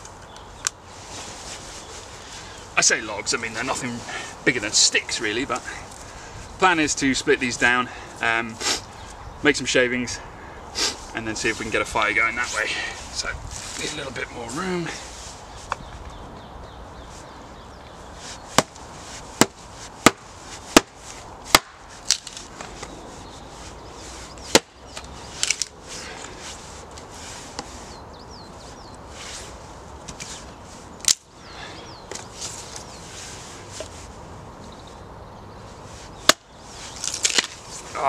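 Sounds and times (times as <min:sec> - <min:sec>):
axe splitting wood: 0:18.6 - 0:18.8, 0:19.4 - 0:22.4, 0:24.5 - 0:24.7, 0:36.2 - 0:37.6.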